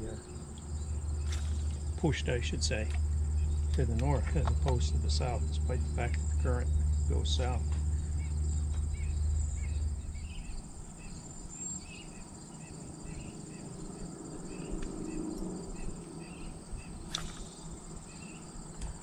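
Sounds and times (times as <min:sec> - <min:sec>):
insects trilling: 0:00.0 - 0:19.0
sharp click: 0:17.1 - 0:17.7.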